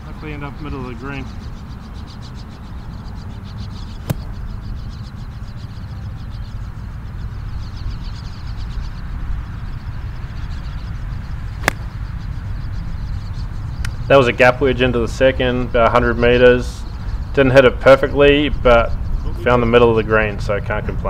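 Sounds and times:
birds chirping: 0.0 - 21.0
golf club striking ball: 4.0 - 4.4, 11.6 - 12.0.

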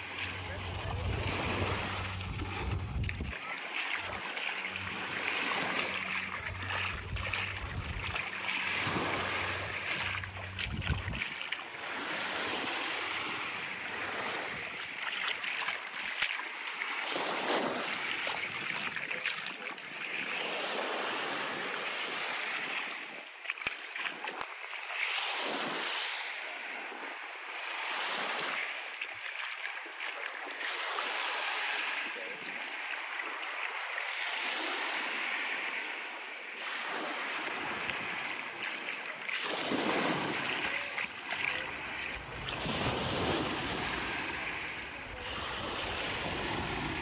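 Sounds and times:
low engine hum: 0.0 - 3.3, 4.1 - 11.3
small waves washing onto sand: 0.0 - 47.0
wind on microphone: 0.5 - 3.4, 6.3 - 11.4.

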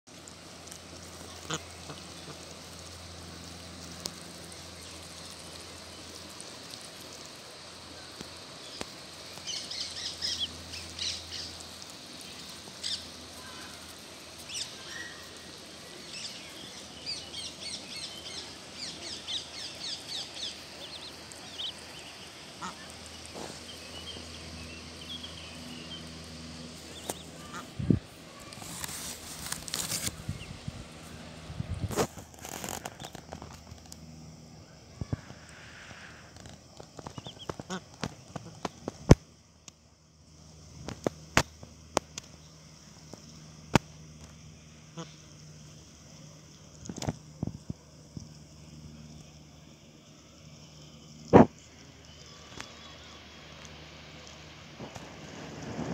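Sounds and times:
goslings peeping: 1.2 - 2.5, 9.4 - 11.6, 16.1 - 26.1, 26.8 - 27.8, 37.0 - 38.4
rustling: 28.2 - 34.0.

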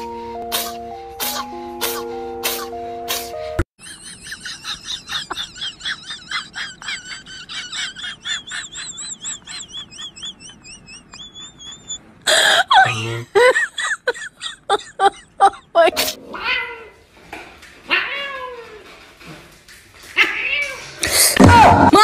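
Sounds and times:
person's voice: 12.8 - 13.4.

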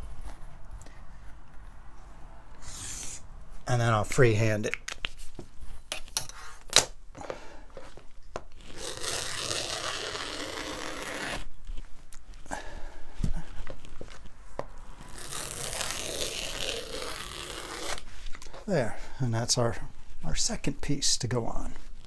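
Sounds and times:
rotary cutter hissing through padding: 2.6 - 3.2.

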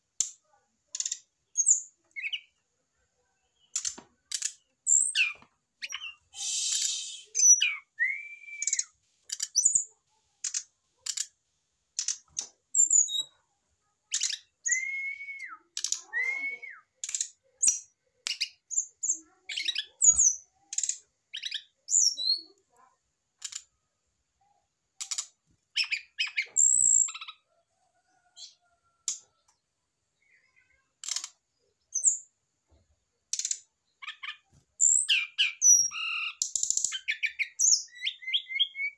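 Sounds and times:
bird whistled notes: 6.3 - 8.9.

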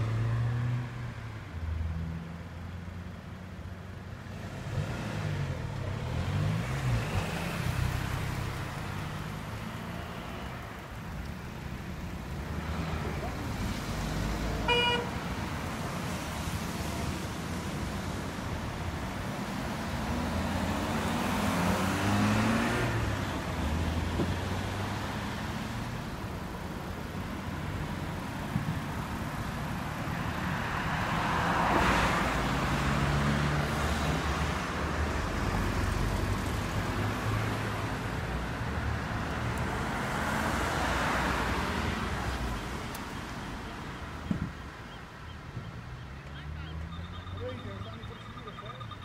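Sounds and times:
cars driving past: 0.0 - 49.0
steady traffic noise: 0.0 - 49.0.

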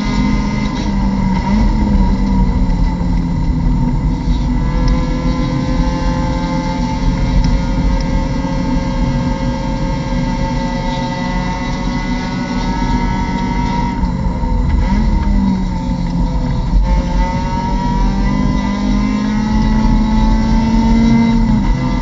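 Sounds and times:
race car engine running hard: 0.0 - 22.0
road and wind noise: 0.0 - 22.0.

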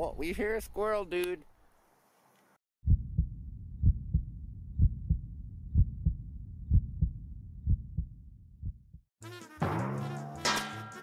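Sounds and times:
heartbeat double thump: 2.8 - 9.1
music: 9.2 - 11.0.

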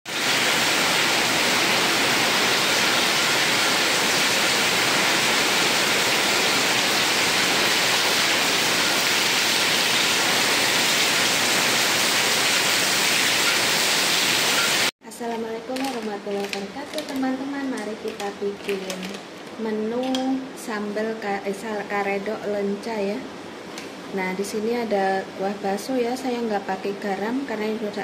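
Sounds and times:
heavy rain pouring: 0.1 - 14.9.

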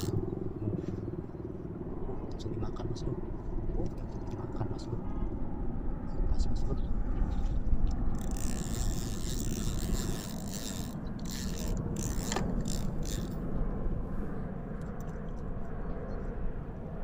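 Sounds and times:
fishing reel clicking and ratcheting: 0.0 - 0.2, 7.9 - 13.4
fishing line hissing off reel: 8.1 - 13.4.

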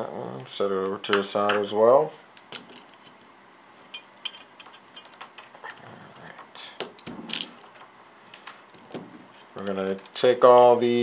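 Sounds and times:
small metal parts clicking: 7.0 - 8.6.

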